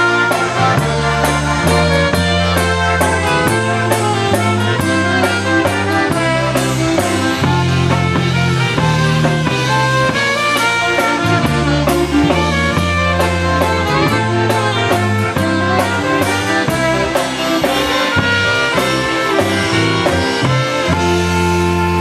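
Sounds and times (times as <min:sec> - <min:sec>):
polka band playing a waltz: 0:00.0 - 0:22.0
saxophone: 0:00.0 - 0:22.0
trumpet: 0:00.0 - 0:22.0.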